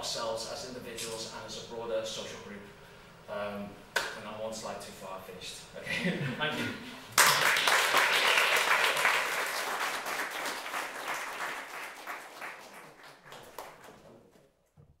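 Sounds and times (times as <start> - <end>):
audience applauding: 7.2 - 14.2.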